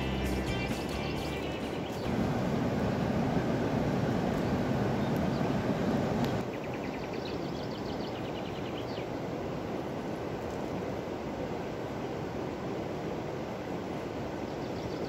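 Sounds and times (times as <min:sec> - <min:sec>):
bird chirping high notes: 0:00.0 - 0:02.1
river water rushing: 0:00.0 - 0:06.5, 0:09.1 - 0:14.8.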